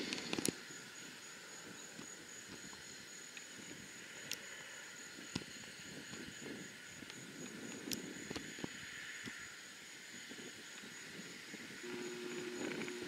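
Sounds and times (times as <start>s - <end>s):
high-pitched whine: 11.8s - 13.0s.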